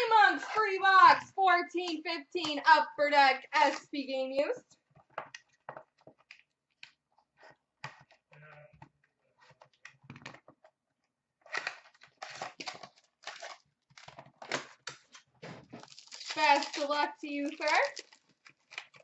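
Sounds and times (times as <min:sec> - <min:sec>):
cardboard and paper rustling: 0:11.5 - 0:19.0.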